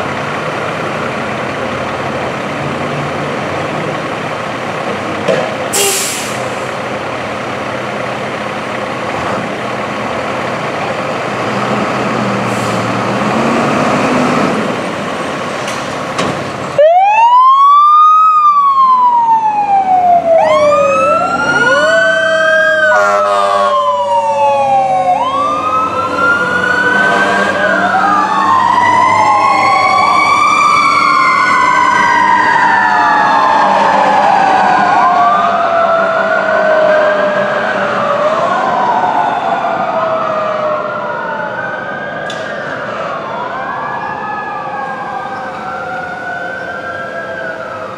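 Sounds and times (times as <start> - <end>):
diesel engines running: 0.0 - 47.9
fire engine siren wailing: 0.0 - 47.9
horn blast: 22.9 - 23.8, 27.0 - 27.8.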